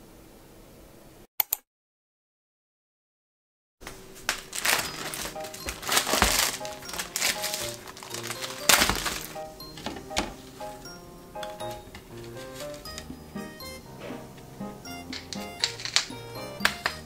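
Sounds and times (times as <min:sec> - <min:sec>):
cloth rustling: 0:03.8 - 0:10.8, 0:11.4 - 0:13.2
soft background music: 0:04.5 - 0:17.0.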